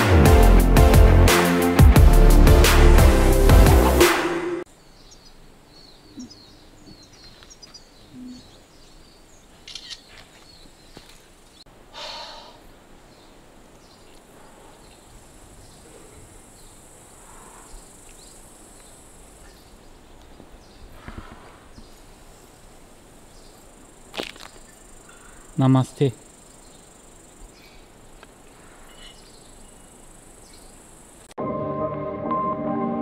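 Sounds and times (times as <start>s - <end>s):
faint bird chirps: 4.8s - 20.9s, 28.5s - 30.8s
steady high hiss: 11.4s - 31.4s.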